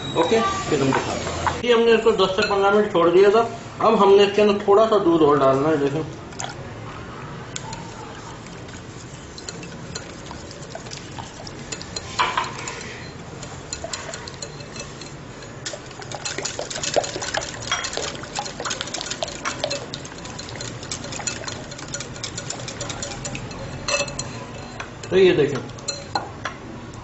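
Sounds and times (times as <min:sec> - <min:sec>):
whisk stirring wet batter: 0:07.6 - 0:26.2
whisk wires clicking on glass: 0:09.3 - 0:26.2.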